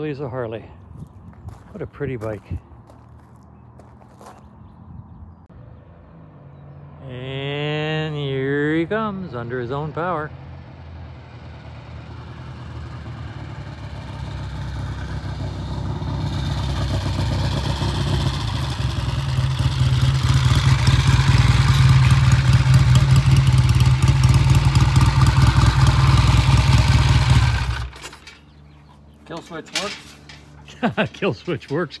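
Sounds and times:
motorcycle engine approaching: 10.2 - 31.6.

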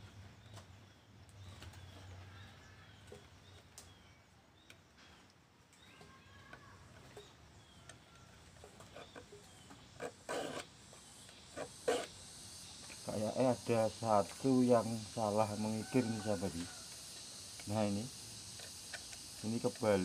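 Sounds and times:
file rasping on saw teeth: 8.9 - 10.7, 11.6 - 12.2
small clicks: 16.8 - 20.0.

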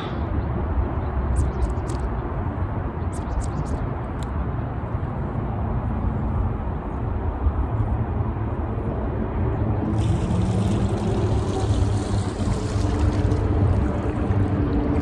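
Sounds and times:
wind buffeting microphone: 9.5 - 15.0.

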